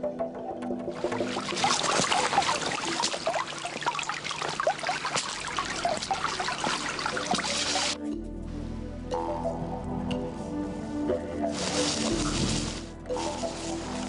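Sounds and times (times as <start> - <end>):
background music: 0.0 - 14.0
boots splashing through water: 1.0 - 8.0, 11.4 - 14.0
stream babbling over rocks: 1.0 - 8.0.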